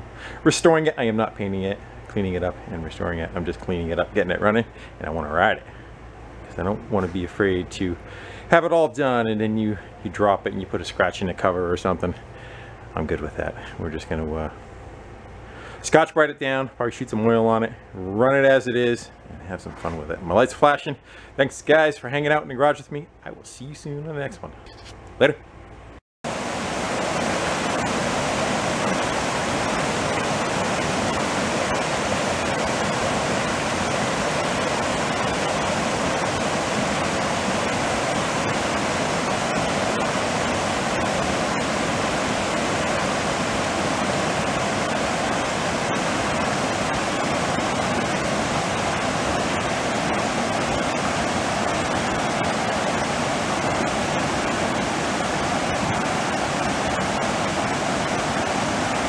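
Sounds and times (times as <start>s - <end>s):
creek rushing over rocks: 26.3s - 59.0s.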